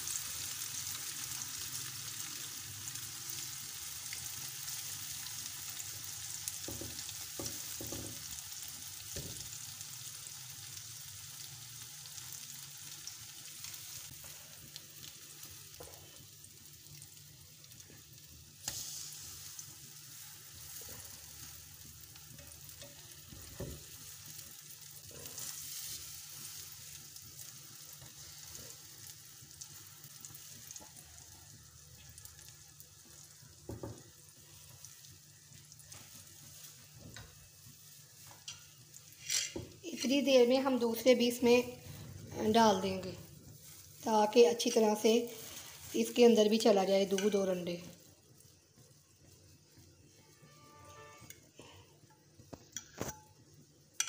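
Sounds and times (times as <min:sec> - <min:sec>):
bread frying in oil: 0:00.0 - 0:54.0.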